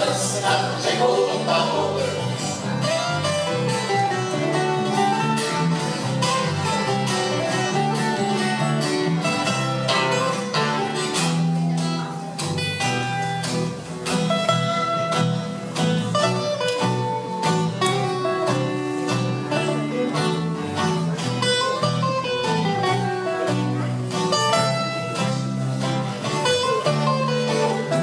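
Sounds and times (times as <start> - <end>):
acoustic guitars strumming: 0.0 - 28.0.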